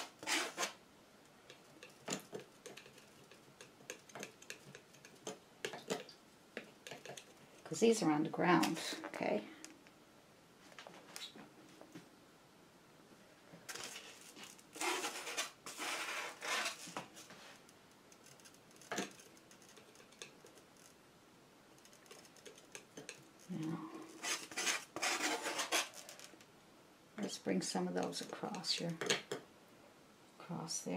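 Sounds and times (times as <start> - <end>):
palette knife scraping paint: 0.0 - 0.8, 1.8 - 6.1, 13.8 - 17.3, 24.1 - 26.2.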